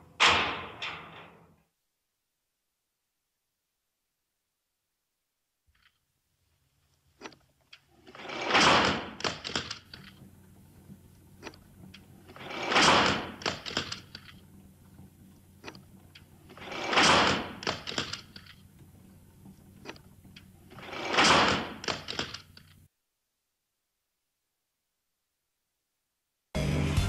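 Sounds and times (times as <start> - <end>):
gramophone crank clicks: 7.2 - 22.8.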